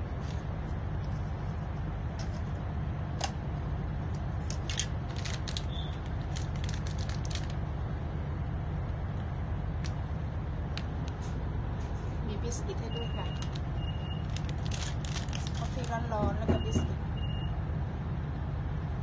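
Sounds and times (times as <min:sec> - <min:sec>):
train carriage rumble: 0:00.0 - 0:17.3
plastic wrapper crinkling: 0:04.4 - 0:07.6, 0:13.4 - 0:16.1.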